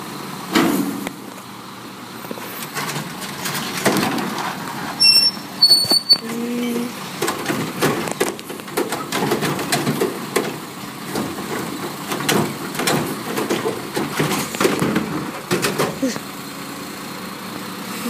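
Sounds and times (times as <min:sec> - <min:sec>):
trash cart knocking and clattering: 0:00.5 - 0:01.2, 0:02.6 - 0:04.7, 0:05.7 - 0:16.2
garbage truck lifting arm: 0:02.3 - 0:16.3
garbage falling into hopper: 0:02.7 - 0:04.4, 0:07.2 - 0:16.2.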